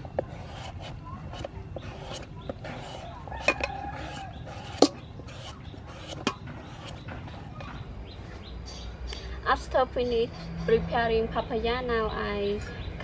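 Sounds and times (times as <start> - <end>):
knife slicing papaya: 0.0 - 7.0.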